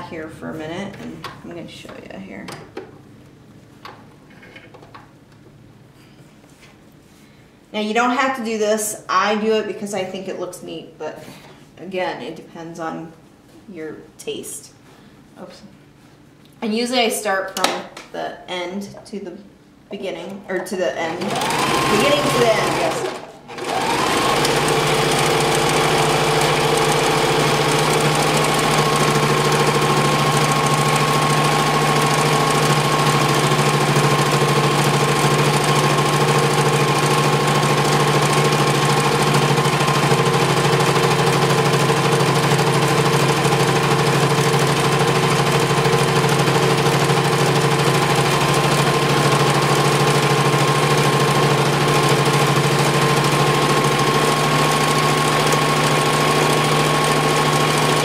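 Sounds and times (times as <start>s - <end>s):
sewing machine motor hum: 21.1s - 58.0s.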